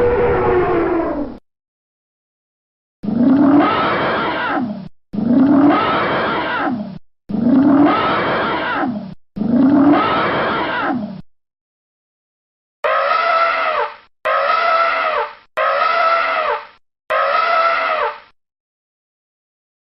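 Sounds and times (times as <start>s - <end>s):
animal roaring call: 0.0s - 1.4s, 3.0s - 11.2s.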